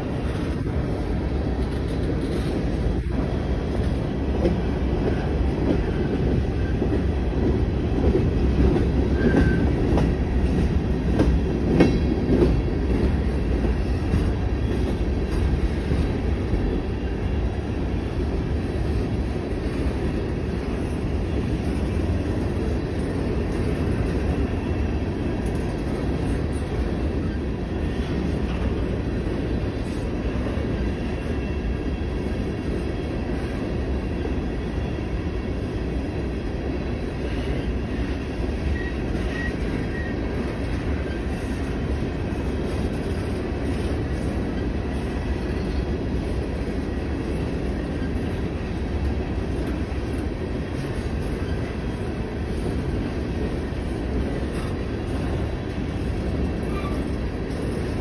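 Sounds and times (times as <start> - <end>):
train wheels rumbling on rail: 0.0 - 58.0
faint high squeaks: 56.6 - 57.2.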